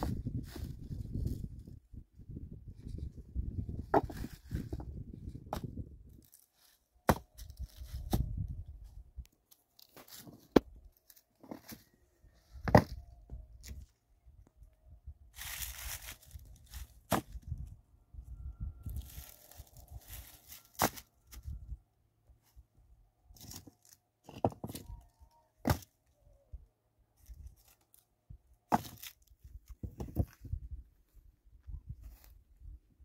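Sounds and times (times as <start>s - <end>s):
footsteps scraping gravel and grass: 15.4s - 17.4s, 18.9s - 21.4s.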